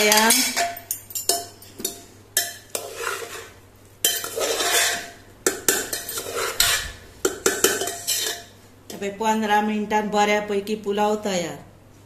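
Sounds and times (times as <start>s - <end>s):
spoon scraping rice: 1.8s - 8.5s
spoon knocking against pot: 5.4s - 8.4s.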